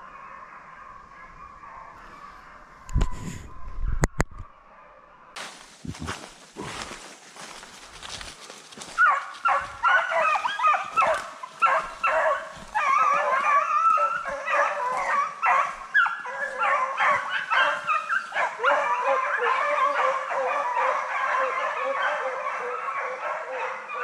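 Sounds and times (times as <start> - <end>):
dogs baying and yelping: 8.7 - 24.0.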